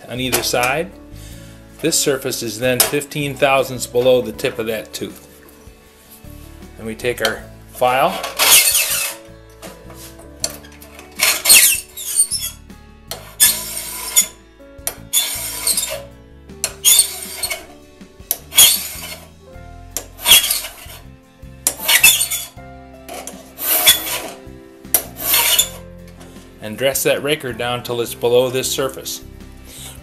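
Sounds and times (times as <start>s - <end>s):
file rasping on saw tooth: 8.3s - 9.2s, 11.2s - 14.4s, 15.0s - 16.1s, 16.7s - 17.7s, 18.4s - 19.3s, 20.1s - 21.1s, 21.7s - 22.6s, 23.4s - 24.4s, 25.0s - 25.8s.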